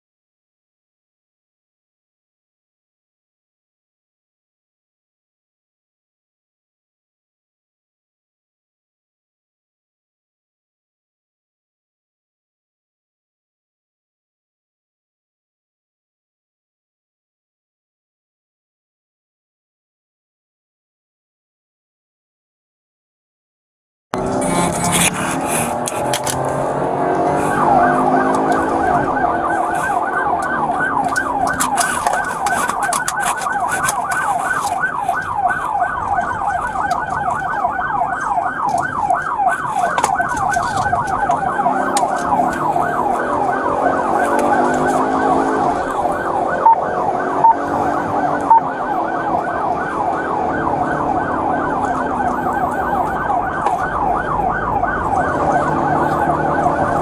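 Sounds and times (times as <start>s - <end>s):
police siren yelping: 24.2s - 57.0s.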